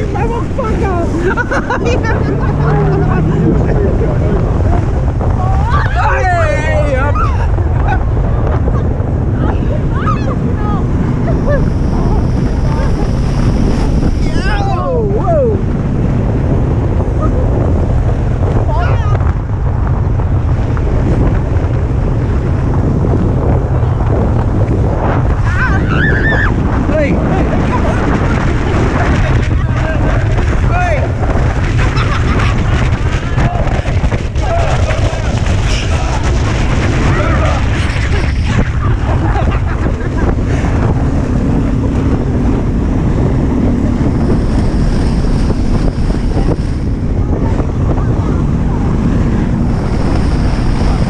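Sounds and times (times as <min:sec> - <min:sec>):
water rushing and spraying: 0:00.0 - 0:19.4, 0:20.4 - 0:51.0
wind buffeting microphone: 0:00.0 - 0:51.0
steady low hum: 0:07.4 - 0:18.5, 0:34.2 - 0:51.0.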